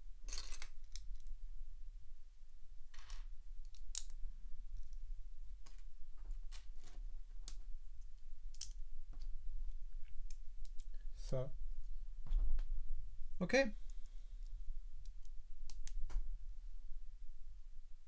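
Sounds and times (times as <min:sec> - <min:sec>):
plastic bricks clicking together: 0:03.0 - 0:04.2, 0:08.5 - 0:08.8.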